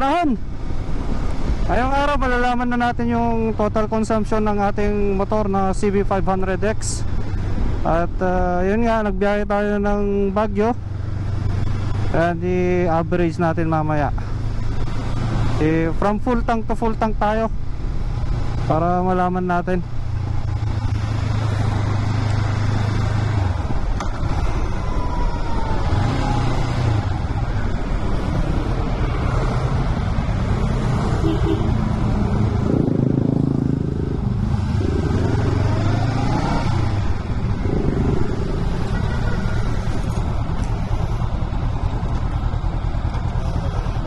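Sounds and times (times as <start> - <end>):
wind and road noise: 0.0 - 44.0
motorcycle engine running: 27.0 - 44.0.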